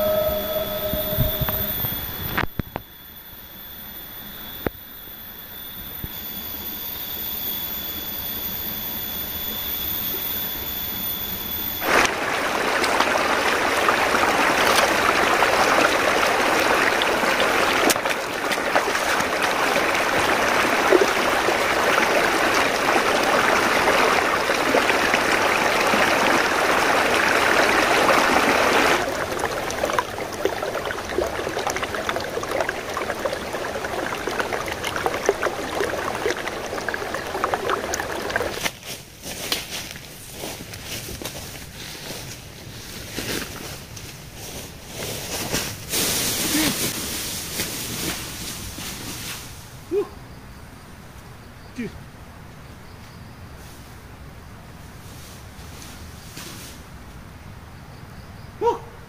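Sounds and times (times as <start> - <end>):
high-pitched whine: 0.0 - 38.7
stream rushing over boulders: 11.8 - 38.8.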